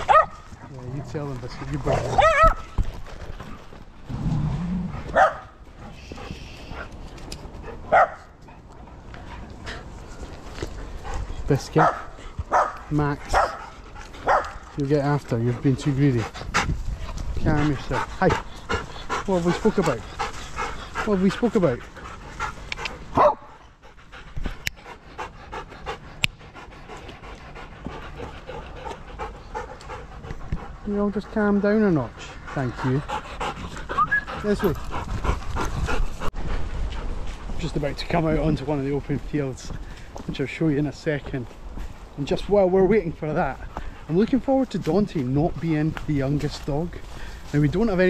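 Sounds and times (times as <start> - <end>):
dog barking: 0.0 - 0.4, 1.9 - 2.6, 5.1 - 5.6, 7.9 - 8.3, 11.8 - 14.6, 23.2 - 23.5
dogs panting: 0.0 - 4.0, 4.9 - 48.0
low rumbling sound: 3.9 - 6.5.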